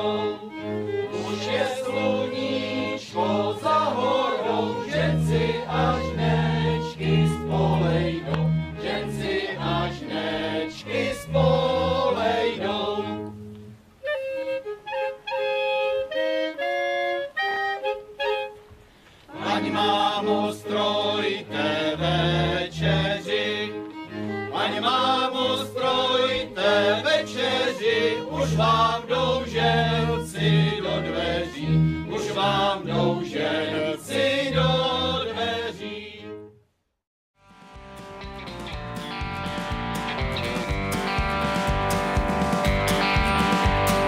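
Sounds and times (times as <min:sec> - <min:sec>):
group of voices singing: 0:00.0 - 0:13.3, 0:19.3 - 0:36.4
folk band playing: 0:00.0 - 0:36.5, 0:37.4 - 0:44.0.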